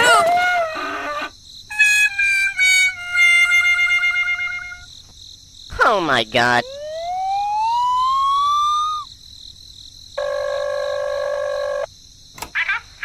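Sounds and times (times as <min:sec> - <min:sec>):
rising siren-like tone: 0:06.5 - 0:09.1.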